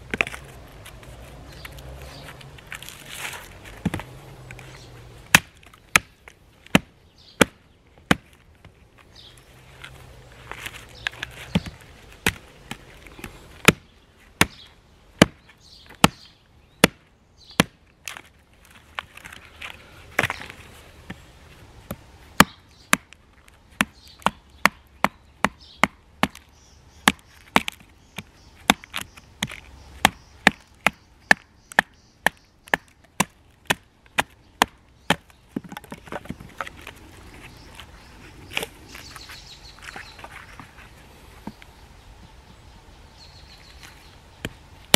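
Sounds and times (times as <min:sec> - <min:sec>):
hatchet chopping wood: 0:05.2 - 0:08.4, 0:11.2 - 0:18.2, 0:21.8 - 0:36.8.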